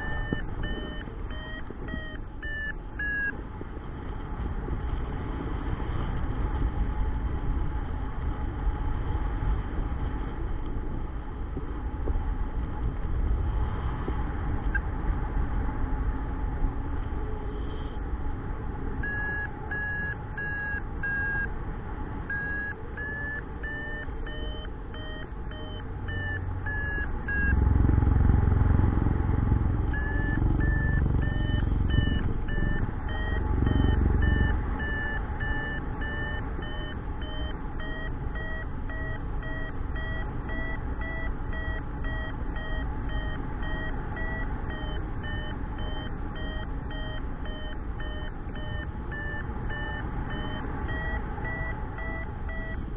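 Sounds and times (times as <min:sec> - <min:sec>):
variometer beeping: 0:00.0 - 0:03.5, 0:19.0 - 0:21.6, 0:22.2 - 0:52.9.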